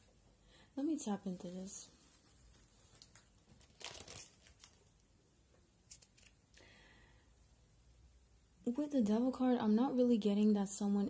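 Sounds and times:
faint rustling and crinkling: 0:01.0 - 0:06.6.

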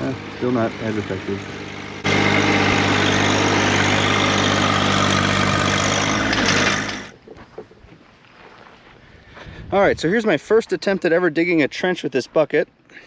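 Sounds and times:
tractor diesel engine running: 0:00.0 - 0:07.2.

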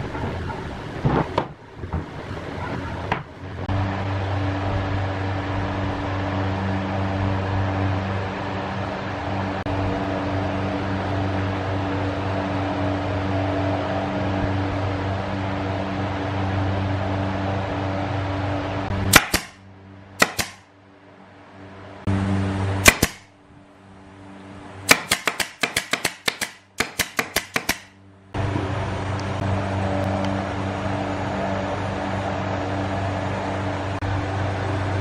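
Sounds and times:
low machine hum: 0:00.0 - 0:35.0
brad nailer firing: 0:19.1 - 0:19.6, 0:20.2 - 0:20.7, 0:22.8 - 0:23.3, 0:24.9 - 0:28.0.

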